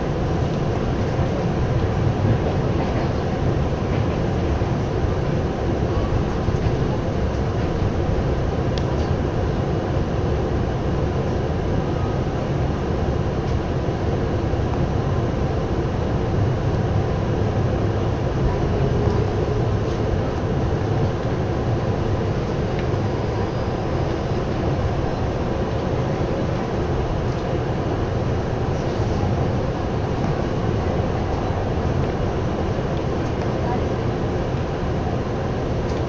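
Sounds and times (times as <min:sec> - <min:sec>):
train wheels on rails: 0:00.0 - 0:09.3, 0:18.2 - 0:36.0.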